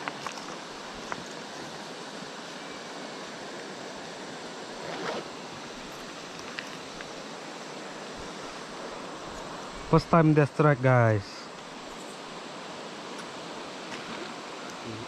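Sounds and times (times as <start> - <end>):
river flowing over stones: 0.0 - 15.0
short scrape: 4.8 - 5.3.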